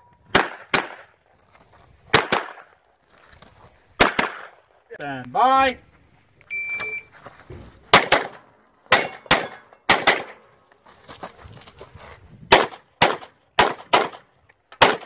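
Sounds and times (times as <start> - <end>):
handgun shots in pairs: 0.3 - 1.1, 2.1 - 2.7, 4.0 - 4.6, 7.9 - 10.5, 12.5 - 15.0.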